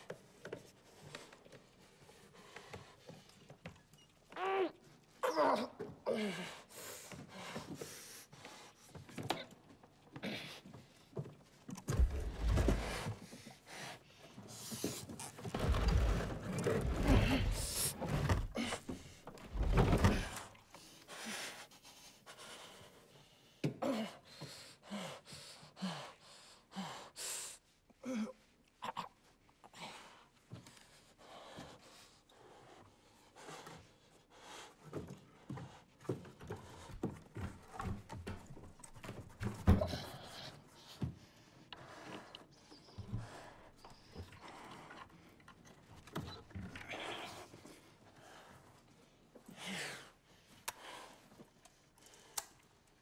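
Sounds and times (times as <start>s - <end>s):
man breathing heavily: 5.8s - 9.2s, 16.9s - 27.6s.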